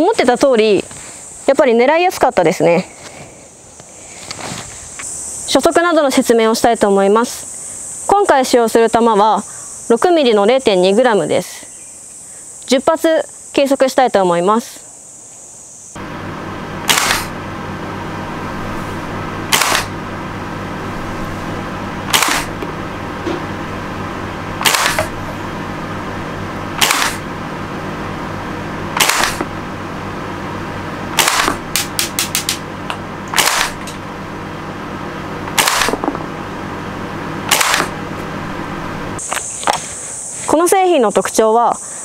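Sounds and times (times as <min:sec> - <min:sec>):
steady background hum: 0:00.0 - 0:42.0
airsoft rifle shots popping: 0:16.8 - 0:17.4, 0:19.5 - 0:20.0, 0:22.1 - 0:22.7, 0:24.6 - 0:25.2, 0:26.8 - 0:27.2, 0:29.0 - 0:29.5, 0:31.2 - 0:32.6, 0:33.3 - 0:34.0, 0:35.5 - 0:36.2, 0:37.5 - 0:38.0.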